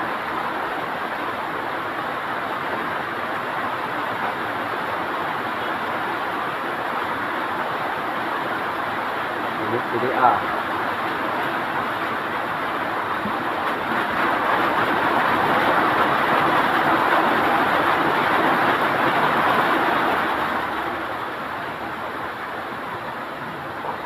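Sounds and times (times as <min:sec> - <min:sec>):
heavy rain falling: 0:00.0 - 0:24.0.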